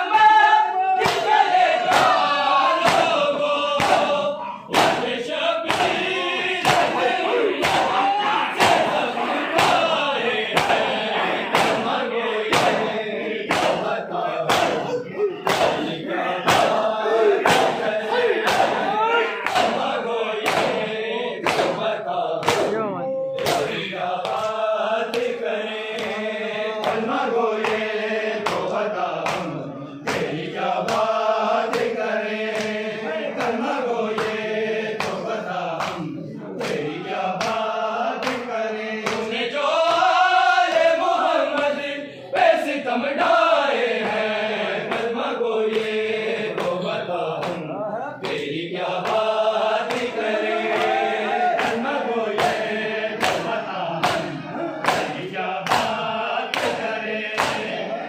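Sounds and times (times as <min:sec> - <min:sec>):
men chanting together: 0:00.0 - 0:58.0
hands slapping chests: 0:01.0 - 0:22.8, 0:23.4 - 0:26.2, 0:26.8 - 0:32.8, 0:33.4 - 0:41.8, 0:45.7 - 0:47.6, 0:48.2 - 0:57.9.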